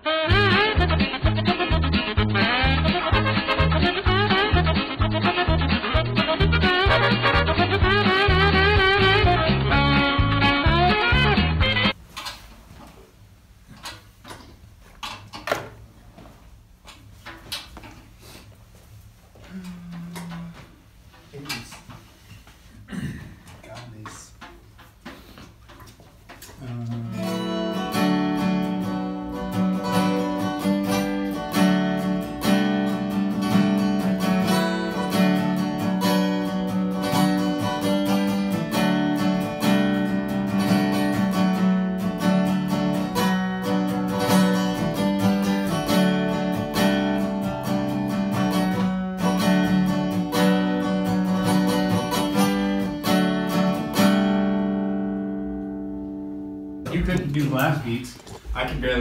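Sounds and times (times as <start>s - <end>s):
acoustic guitar strumming chords: 0.0s - 12.0s, 26.9s - 57.6s.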